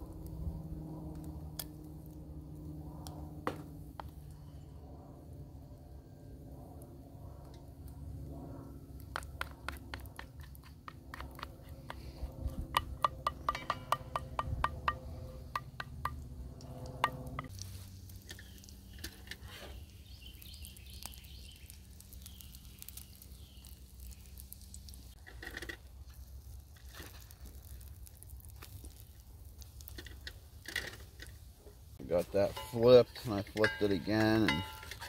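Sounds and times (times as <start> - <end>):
pancakes crackling in skillet: 17.5 - 32.8.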